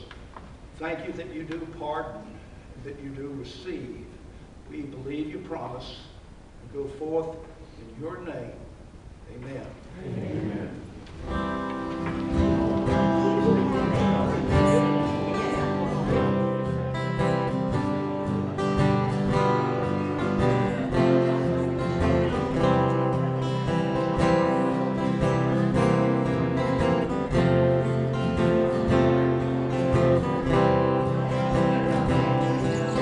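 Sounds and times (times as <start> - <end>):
acoustic guitars strumming: 10.1 - 33.0.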